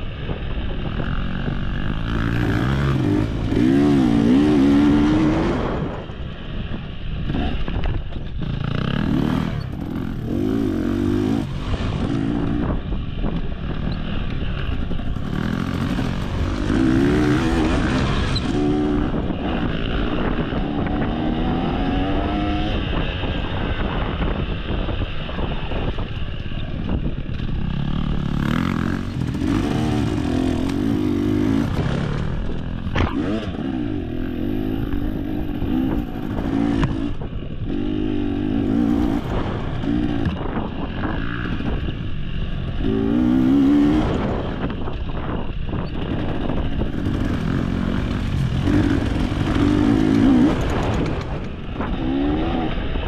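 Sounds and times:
dirt bike engine revving: 0.8s - 6.1s, 8.4s - 25.2s, 27.4s - 53.0s.

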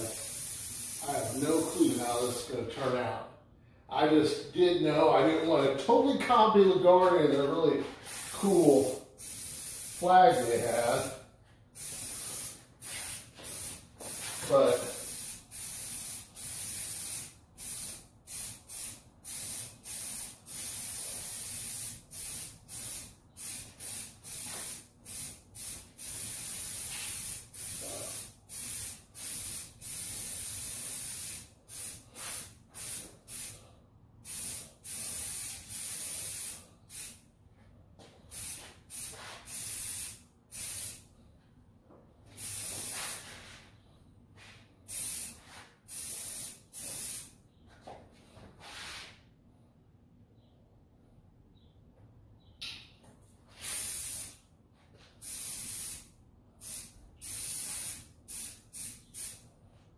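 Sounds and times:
spray paint can hissing: 0.0s - 2.4s, 7.8s - 11.0s, 11.8s - 33.6s, 34.2s - 37.2s, 38.3s - 41.0s, 42.4s - 43.6s, 44.9s - 47.3s, 53.5s - 54.4s, 55.2s - 59.4s.

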